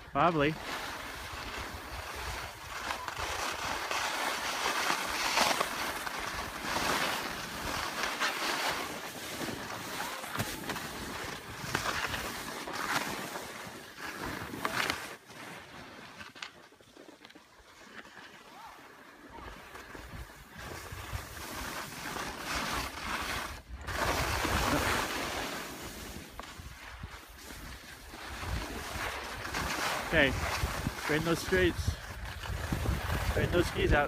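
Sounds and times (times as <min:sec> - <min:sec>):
skis scraping over packed snow: 0:00.0 - 0:34.0
wind on microphone: 0:28.3 - 0:34.0.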